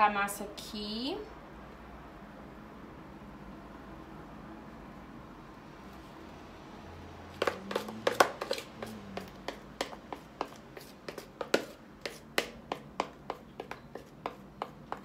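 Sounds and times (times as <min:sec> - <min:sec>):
utensil scraping batter from bowl: 0:07.4 - 0:15.0.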